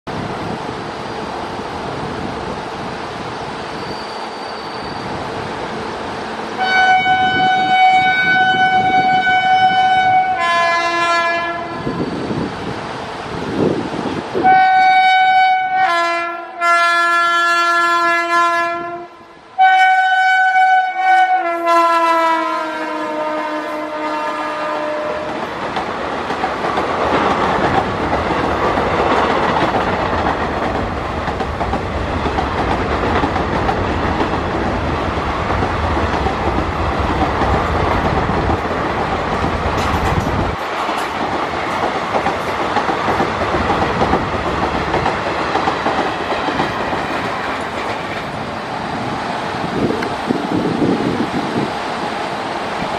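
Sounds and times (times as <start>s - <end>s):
train coaches rumbling past: 0.1s - 52.9s
locomotive air horn blasts: 6.6s - 12.0s, 14.4s - 25.4s
wheel clatter on rail joints: 25.3s - 48.5s.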